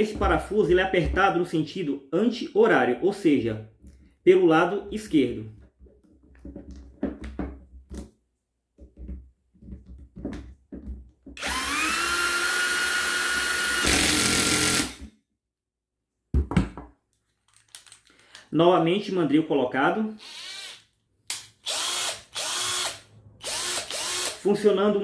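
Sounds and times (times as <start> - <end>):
tool handling clicks and knocks: 5.5 - 11.4
cordless drill motor spinning: 11.4 - 15.0, 20.2 - 20.8, 21.6 - 24.4.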